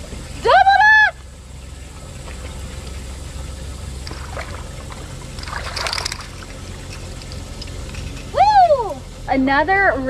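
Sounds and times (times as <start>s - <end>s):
steady low rumble: 0.0s - 10.0s
water lapping against boat: 1.6s - 8.3s
loud splash: 5.4s - 6.4s.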